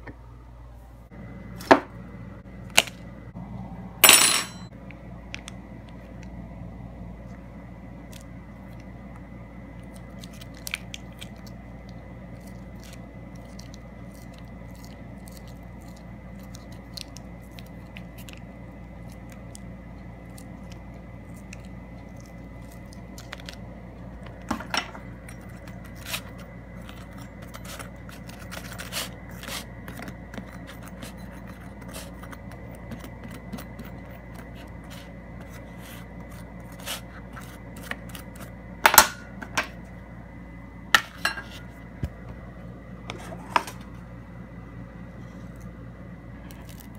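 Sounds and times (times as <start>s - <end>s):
steady hum: 0.0s - 46.9s.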